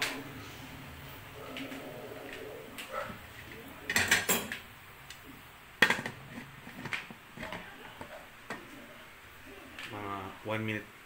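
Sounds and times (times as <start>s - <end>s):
pressure cooker lid clattering: 3.9s - 4.6s, 5.8s - 7.6s.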